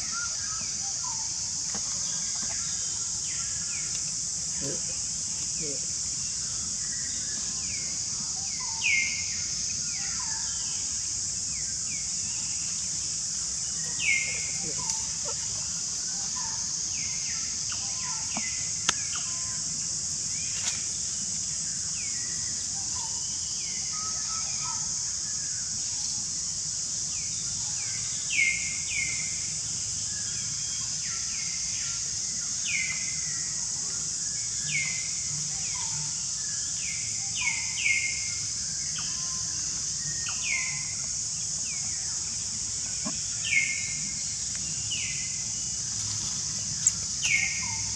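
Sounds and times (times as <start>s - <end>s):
high-pitched insect drone: 0.0s - 47.9s.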